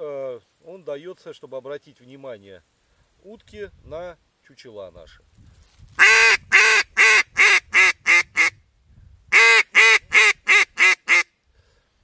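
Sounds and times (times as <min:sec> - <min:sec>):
duck call quacks: 0:06.0 - 0:08.5, 0:09.3 - 0:11.3.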